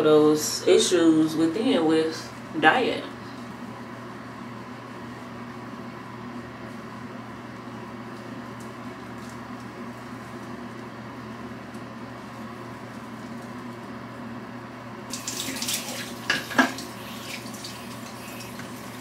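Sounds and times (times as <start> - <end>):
low room tone hum: 0.0 - 19.0
water running into sink: 15.1 - 19.0.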